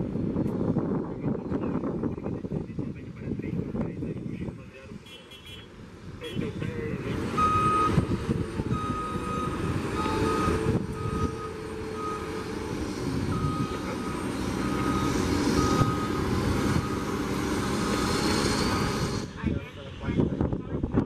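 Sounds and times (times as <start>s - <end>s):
low engine rumble: 5.8s - 21.0s
high warning beeps: 7.4s - 8.0s, 8.7s - 12.4s, 13.3s - 16.2s.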